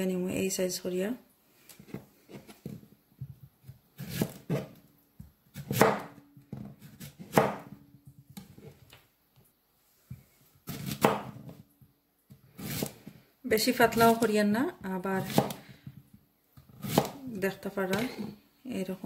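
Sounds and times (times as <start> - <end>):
knife chopping on cutting board: 3.6 - 4.8, 5.5 - 7.8, 10.7 - 11.6, 12.6 - 13.1, 15.2 - 16.0, 16.6 - 17.2.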